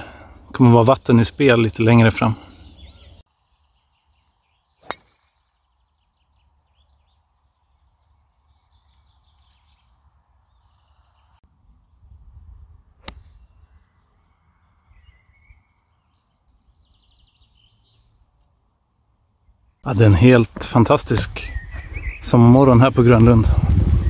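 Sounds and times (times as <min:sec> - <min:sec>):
birds chirping: 0:00.0 - 0:24.0
golf club striking ball: 0:04.8 - 0:05.4, 0:13.0 - 0:13.4
wind on microphone: 0:21.2 - 0:24.0.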